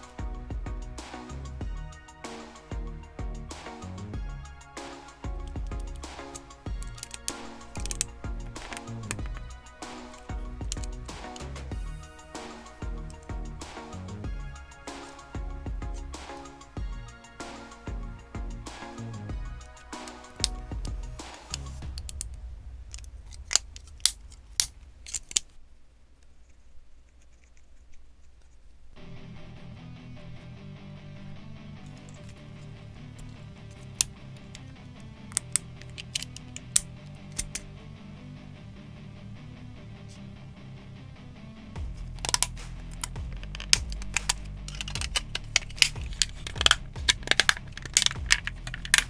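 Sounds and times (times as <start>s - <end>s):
plastic parts clicking together: 5.4s - 11.7s, 22.9s - 25.6s, 31.9s - 32.4s, 33.2s - 37.7s, 42.0s - 49.0s
marker scratching on plastic: 26.3s - 28.8s, 42.2s - 49.0s.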